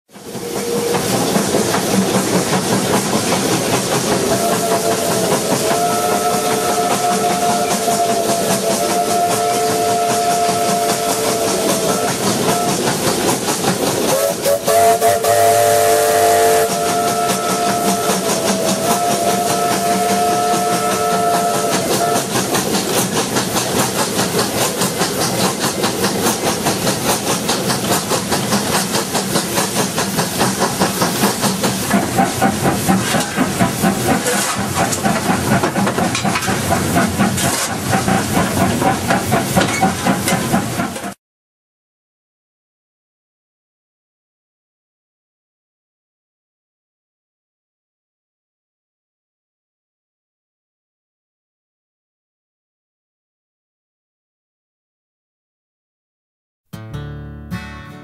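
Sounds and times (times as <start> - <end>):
steam train rumbling: 0.1 - 41.2
steam locomotive whistle: 0.2 - 1.2, 4.1 - 13.2, 14.0 - 22.8.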